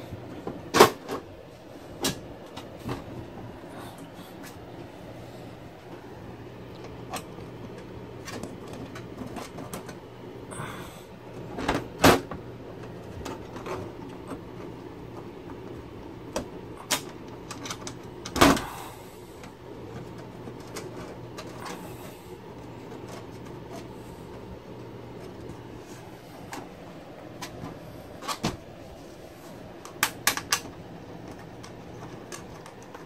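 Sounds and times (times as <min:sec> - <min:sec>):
steady low hum: 0:00.0 - 0:33.0
clicks and knocks of pc case: 0:00.2 - 0:01.3, 0:02.0 - 0:03.5, 0:06.8 - 0:10.0, 0:11.4 - 0:18.8, 0:26.4 - 0:28.7, 0:29.8 - 0:33.0.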